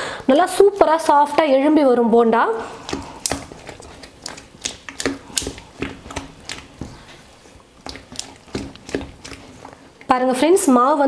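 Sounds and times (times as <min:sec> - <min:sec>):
hand slapping wet batter: 0:02.6 - 0:10.2.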